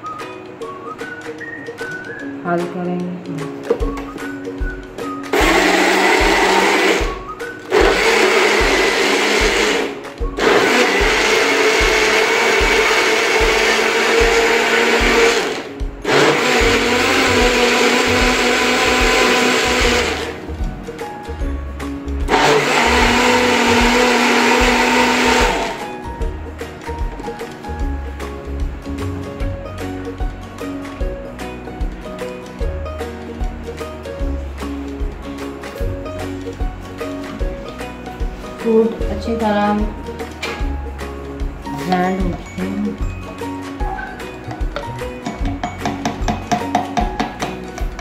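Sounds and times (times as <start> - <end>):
bottle blender running: 5.3 - 20.4, 22.2 - 26.0.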